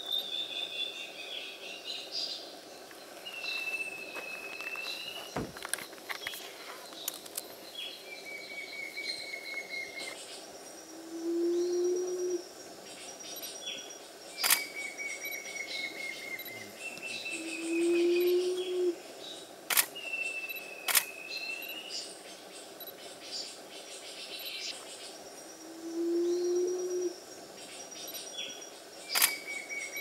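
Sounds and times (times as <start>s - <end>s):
low bird hooting: 10.9s - 12.4s, 15.1s - 19.0s, 25.6s - 27.2s
camera shutter clicks: 14.4s - 14.8s, 19.7s - 19.9s, 20.9s - 21.1s, 29.1s - 29.5s.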